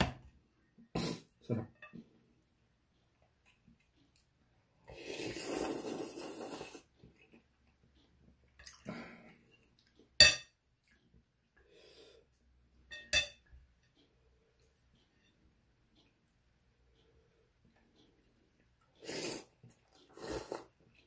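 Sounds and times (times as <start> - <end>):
person slurping noodles: 4.9 - 6.9, 19.0 - 20.8
utensils clinking against glass bowl: 10.2 - 10.5, 12.9 - 13.5.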